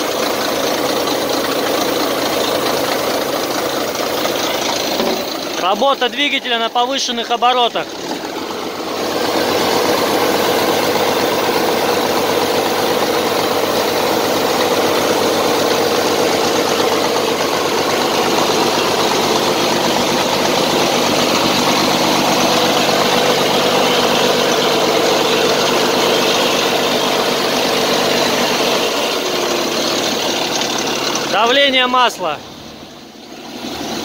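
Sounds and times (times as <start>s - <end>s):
diesel engine running at raised revs: 0.0s - 34.0s.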